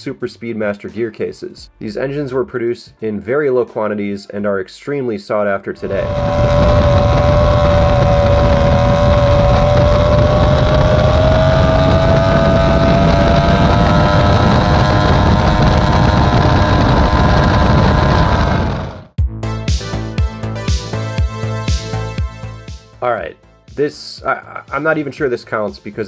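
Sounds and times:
music: 0:00.0 - 0:05.9, 0:19.2 - 0:26.0
outboard engine at high speed: 0:05.8 - 0:19.2.

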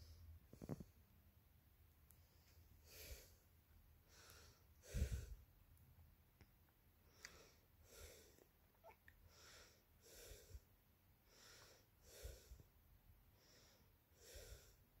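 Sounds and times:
person breathing softly: 0:02.1 - 0:05.5, 0:07.0 - 0:08.6, 0:09.2 - 0:15.0.

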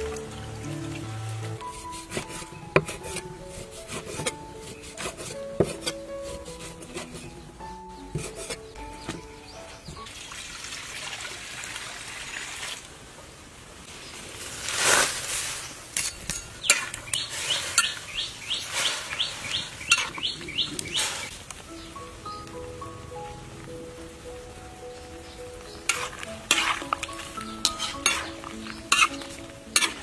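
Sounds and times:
water hissing in wok: 0:17.1 - 0:21.4, 0:25.8 - 0:30.0.

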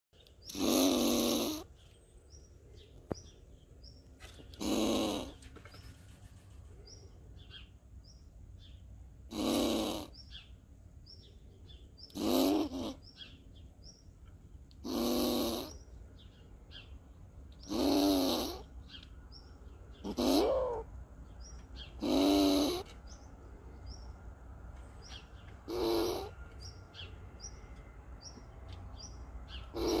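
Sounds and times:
squirrel harsh hoarse calls: 0:00.4 - 0:01.7, 0:04.5 - 0:05.4, 0:09.3 - 0:10.4, 0:12.0 - 0:13.4, 0:14.8 - 0:15.8, 0:17.6 - 0:18.8, 0:19.9 - 0:20.9, 0:21.8 - 0:23.0, 0:25.6 - 0:26.4, 0:29.5 - 0:30.0.

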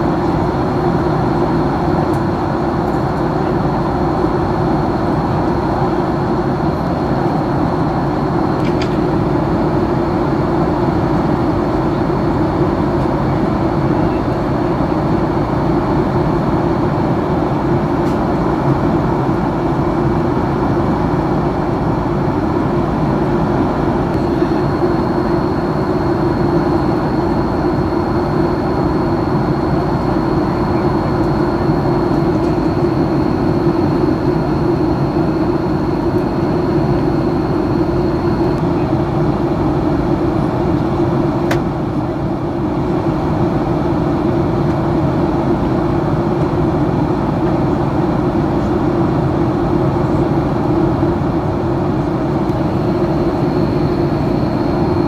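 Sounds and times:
faint high whine: 0:24.1 - 0:38.9, 0:50.0 - 0:55.0.

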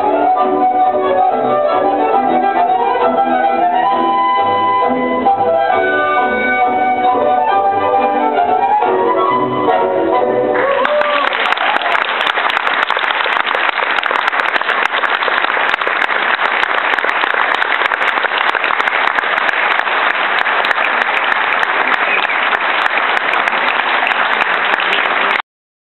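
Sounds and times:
audience applauding: 0:10.5 - 0:25.4.

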